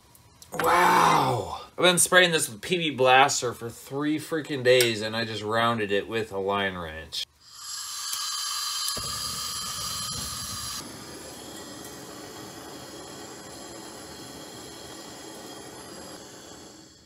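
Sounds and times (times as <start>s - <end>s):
gas torch hissing: 7.4s - 17.0s.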